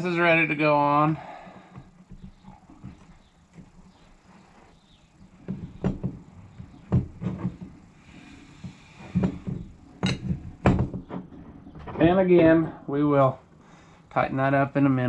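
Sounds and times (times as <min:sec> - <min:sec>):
metal clinks and knocks: 0:08.6 - 0:12.0.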